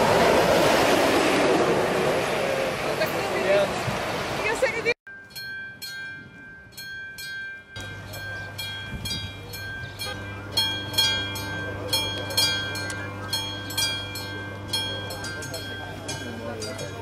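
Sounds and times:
railroad crossing bell ringing: 5.1 - 17.0.

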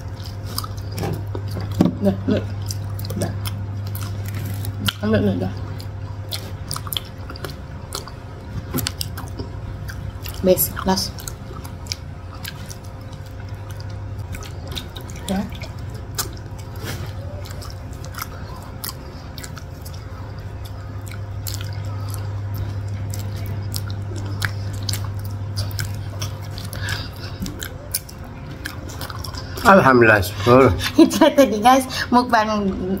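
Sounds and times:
chewing with mouth clicks: 0.0 - 30.9
steady low hum: 0.0 - 33.0.

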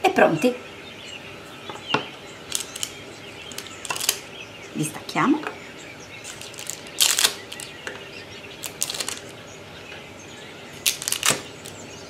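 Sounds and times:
crackling rustles and small clicks: 2.5 - 4.2, 6.2 - 8.0, 8.6 - 9.3, 10.8 - 11.8.

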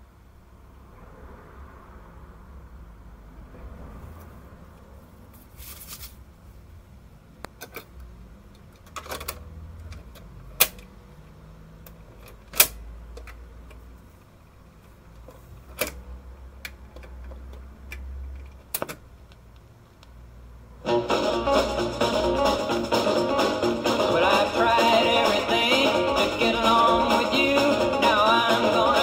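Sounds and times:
paper sleeve rustling: 5.4 - 6.2.

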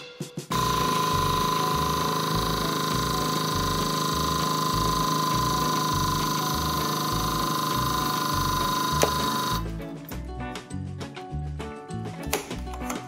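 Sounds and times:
hydraulic press motor whining: 0.5 - 9.7.

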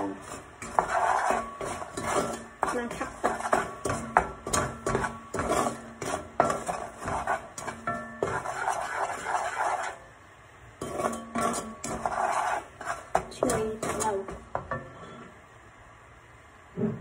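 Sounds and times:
wooden utensil stirring in pot: 0.0 - 10.0, 10.8 - 15.0.

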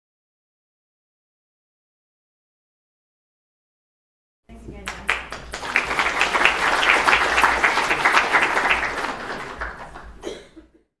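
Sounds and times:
audience applauding: 4.8 - 10.4.

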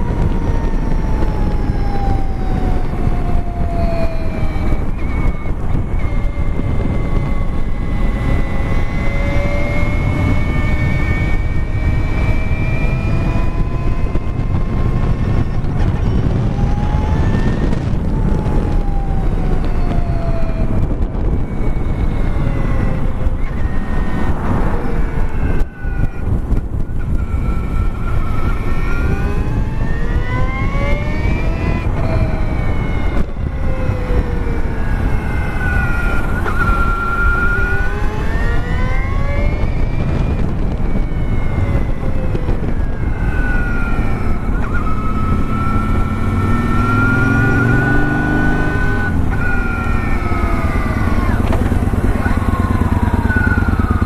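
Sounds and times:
electric motorcycle motor whining: 0.0 - 54.0
wind and road noise: 0.0 - 54.0.

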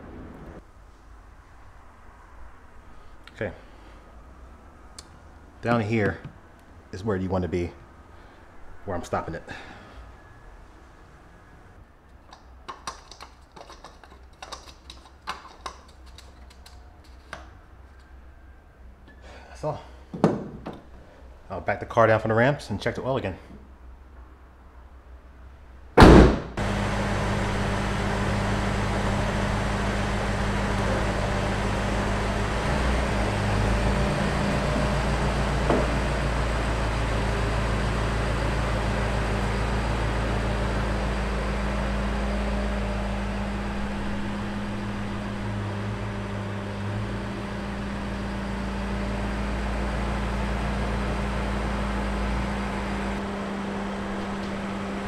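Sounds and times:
car engine low rumble: 25.8 - 55.0.

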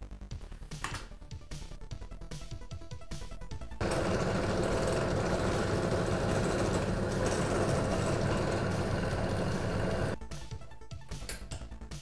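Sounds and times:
drill press drilling plastic: 3.8 - 10.2.

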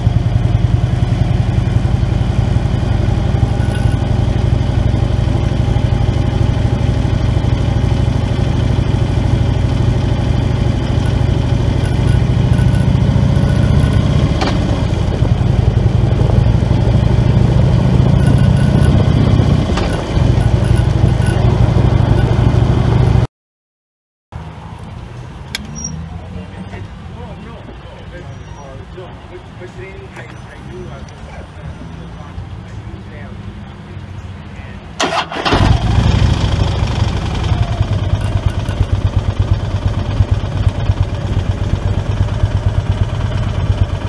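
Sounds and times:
motorcycle engine running: 0.0 - 23.3, 35.1 - 44.0.

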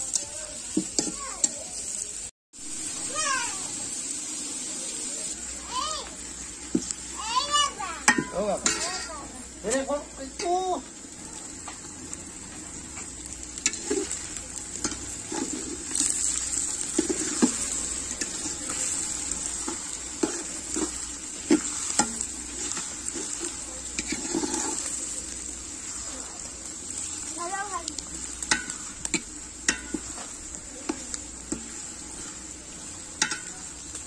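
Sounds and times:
onions sizzling in oil: 0.0 - 34.0
metal spatula scraping a pot: 8.0 - 9.2, 14.8 - 25.0.

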